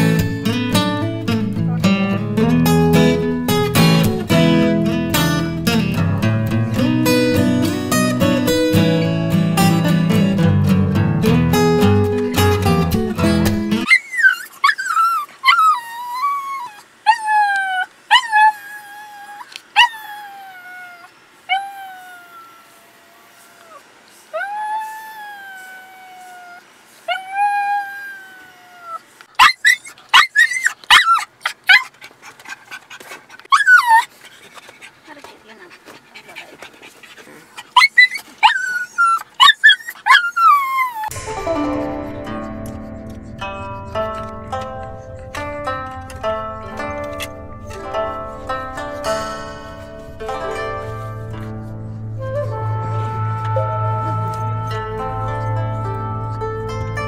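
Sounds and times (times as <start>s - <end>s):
plucked string music: 0.0s - 13.9s, 41.1s - 57.0s
small dog whining: 13.9s - 31.9s, 33.5s - 34.1s, 37.3s - 41.2s, 52.1s - 54.7s.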